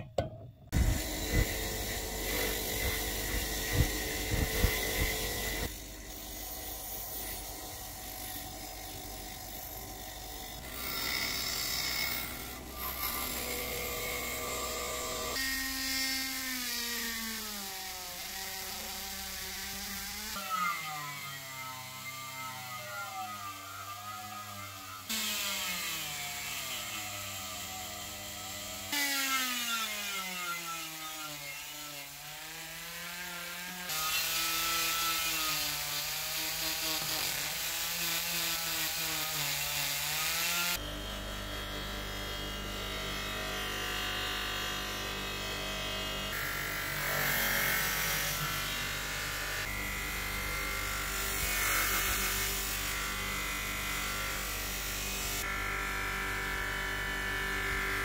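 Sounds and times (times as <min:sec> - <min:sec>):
rotary tool grinding metal: 0:00.7 - 0:40.8
polishing wheel motor humming: 0:00.8 - 0:15.7.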